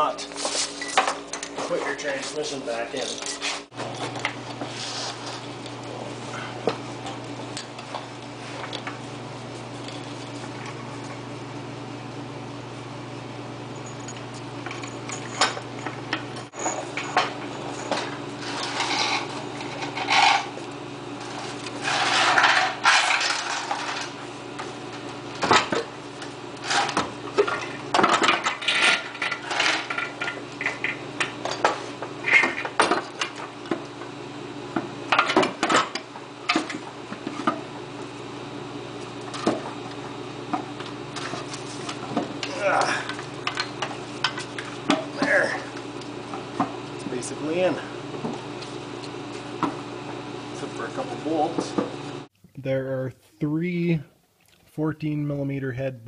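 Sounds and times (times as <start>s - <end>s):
steady low hum: 0.0s - 56.0s
metal clanks and scrapes: 0.2s - 5.5s, 16.5s - 20.6s, 21.2s - 24.2s, 26.6s - 33.4s.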